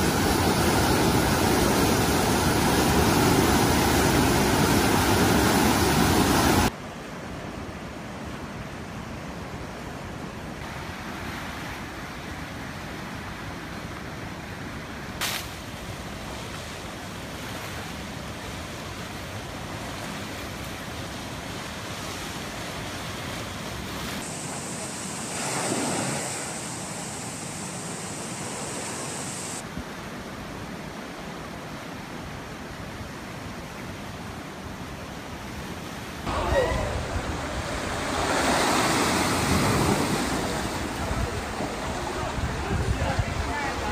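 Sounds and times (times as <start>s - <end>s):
river rushing in steady roar: 0.0s - 43.9s
wind buffeting microphone: 36.3s - 43.9s.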